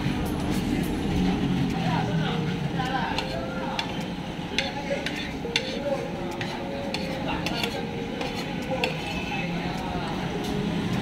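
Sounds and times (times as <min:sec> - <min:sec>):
steady background noise: 0:00.0 - 0:11.0
cutlery clinking on a plate: 0:04.6 - 0:09.3.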